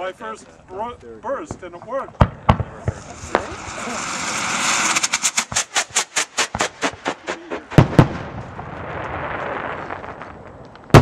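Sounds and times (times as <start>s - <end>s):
firework sharp pops: 1.5s - 11.0s
firework loud bangs: 2.2s - 11.0s
firework hiss: 2.7s - 10.4s.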